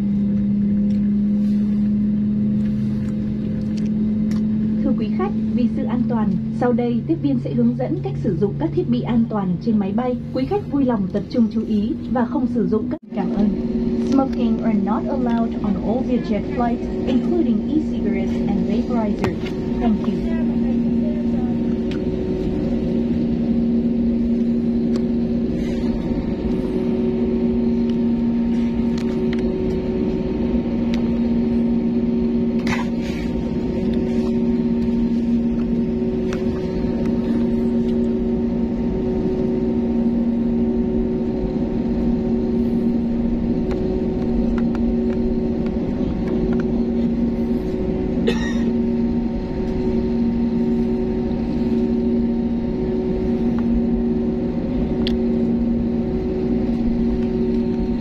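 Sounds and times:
aircraft cabin droning hum: 0.0 - 58.0.

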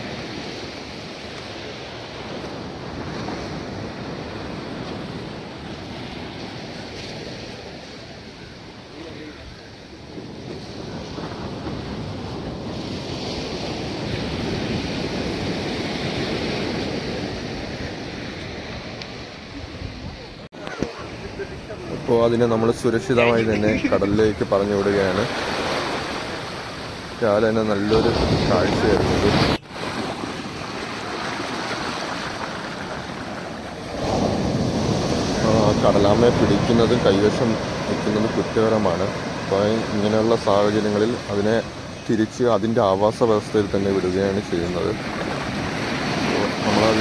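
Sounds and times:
sea surf washing on beach: 0.0 - 47.0
wind on microphone: 9.4 - 24.6.

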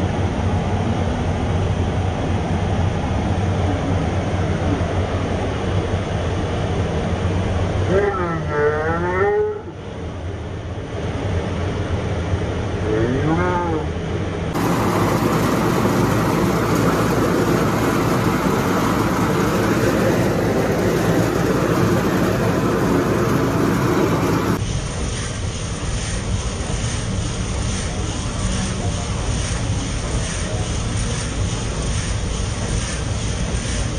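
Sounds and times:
rice milling machinery din: 14.5 - 33.9.

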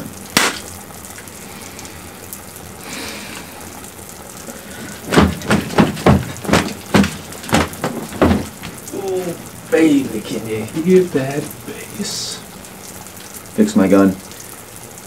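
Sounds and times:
steady hiss: 0.0 - 15.0
loud thumps: 4.7 - 9.0.

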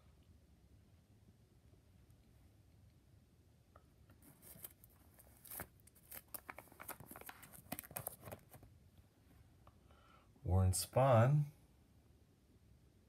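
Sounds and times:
plastic sleeve crinkling: 4.2 - 8.7.

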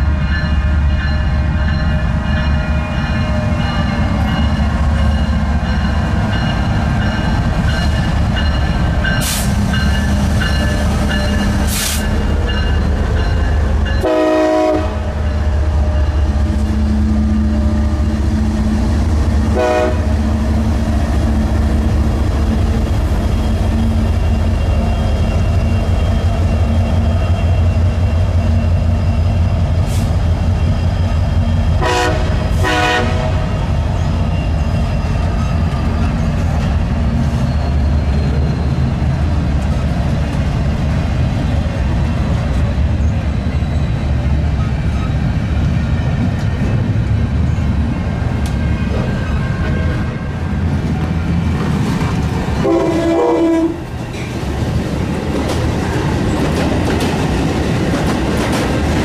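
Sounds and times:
diesel locomotive engine rumble: 0.0 - 59.0
train horn blasts: 14.0 - 16.0, 19.5 - 20.4, 31.8 - 33.5, 52.6 - 53.9.

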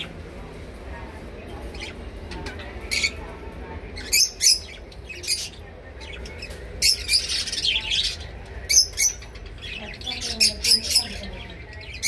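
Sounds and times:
parrots squawking: 4.0 - 12.0.

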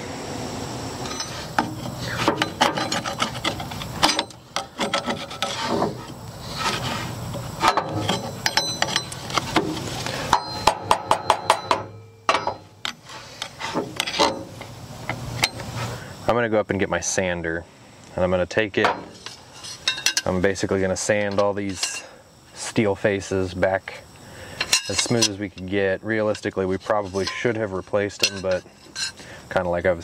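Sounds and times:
screwdriver scraping metal plate: 1.1 - 14.7, 19.0 - 20.3, 24.6 - 25.7, 26.8 - 29.3.

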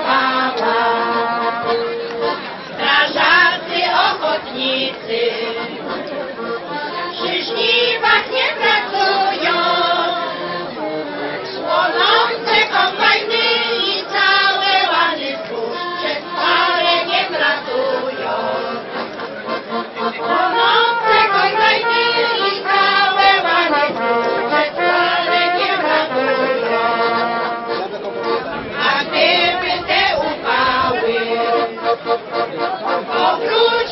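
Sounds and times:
women's choir singing folk song: 0.0 - 33.9
trumpets: 0.1 - 2.7, 19.8 - 33.8.

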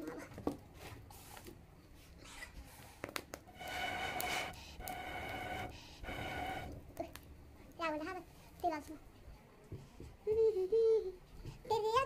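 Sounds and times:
breath blown through pipe whistling: 3.5 - 6.8.

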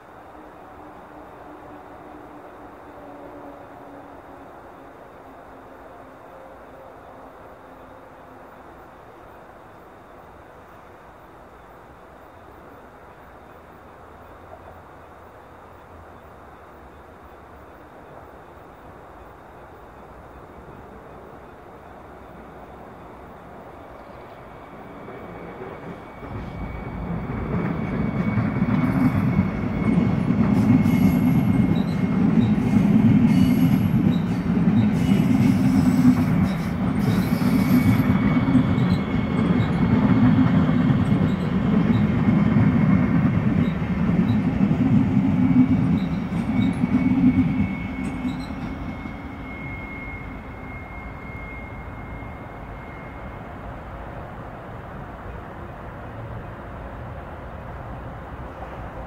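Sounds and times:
train rumbling past: 0.0 - 59.0
high wheel squeal: 24.5 - 44.4, 45.7 - 53.8.

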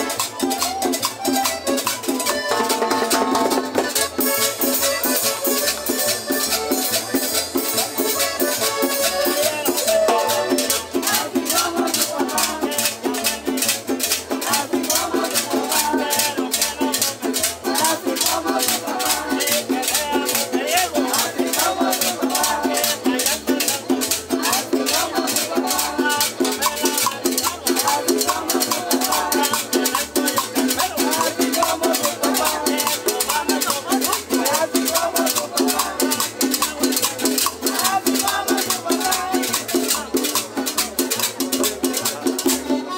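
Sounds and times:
band playing latin dance music: 0.0 - 42.9
percussion beat: 0.0 - 42.9.

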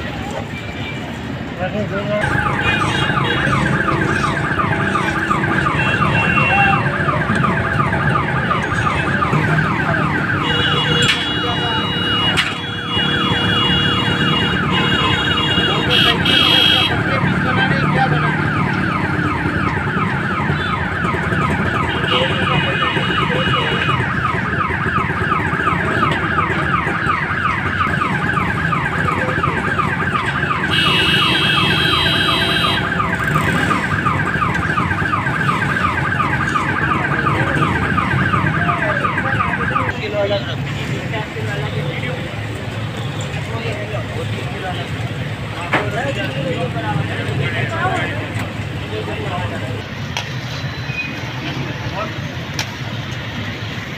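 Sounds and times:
car alarm warbling siren: 2.2 - 40.9.

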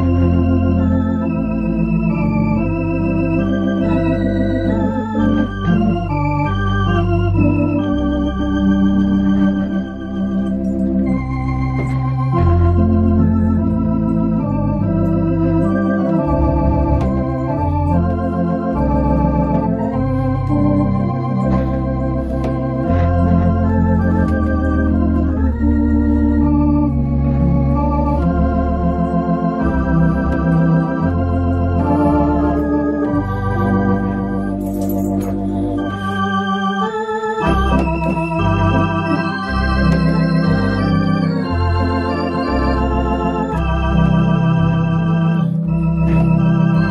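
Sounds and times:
electronic organ chords: 0.0 - 46.9
organ pedal bass notes: 0.0 - 46.9.

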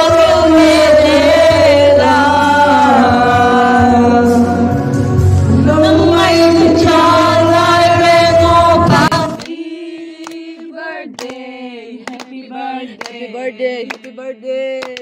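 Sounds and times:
loud singing over music: 0.0 - 15.0
person singing unaccompanied: 5.6 - 15.0.

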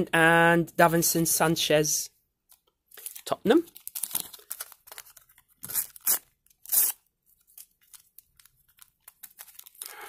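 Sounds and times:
paper packet ripping: 3.0 - 10.0
faint crinkling and handling: 7.2 - 10.0.

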